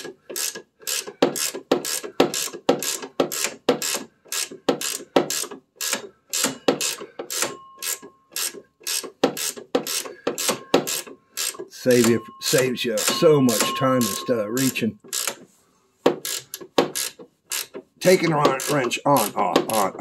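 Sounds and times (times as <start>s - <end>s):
ratcheting wrench clicking: 0.0s - 12.2s, 13.0s - 15.4s, 16.1s - 20.0s.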